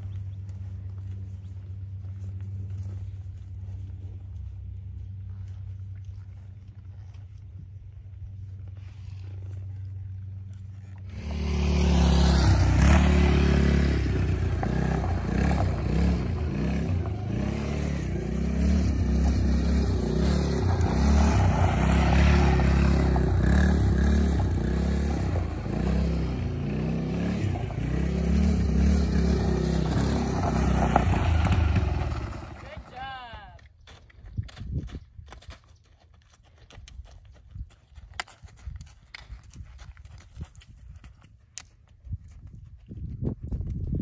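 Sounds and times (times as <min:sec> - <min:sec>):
quad engine revving: 0:11.0 - 0:32.9.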